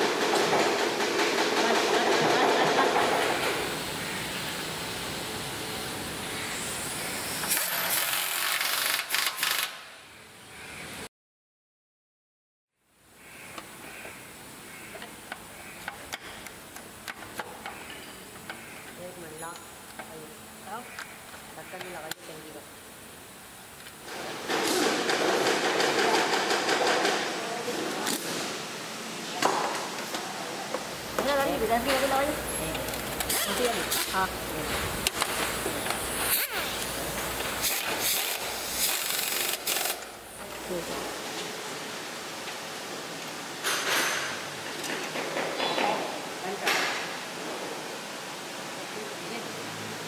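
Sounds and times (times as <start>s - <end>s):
assembly line noise: 0.0s - 9.8s, 30.9s - 41.2s
pneumatic nut runner: 37.5s - 40.1s.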